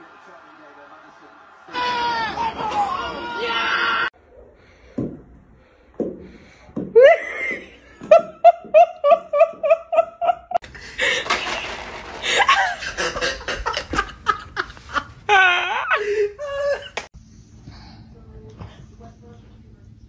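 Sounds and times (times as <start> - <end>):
person laughing: 12.2 - 17.0.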